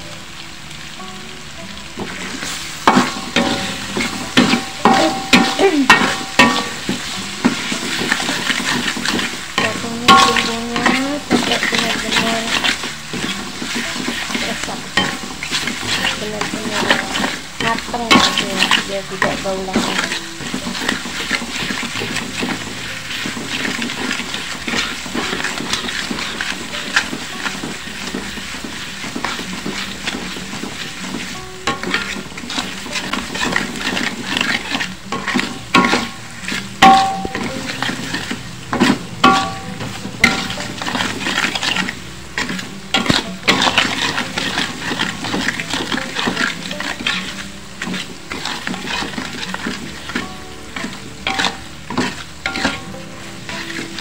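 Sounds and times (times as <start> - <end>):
paste sizzling in oil: 0.0 - 54.0
spatula scraping wok: 1.8 - 54.0
spatula knocking against wok: 36.8 - 41.8.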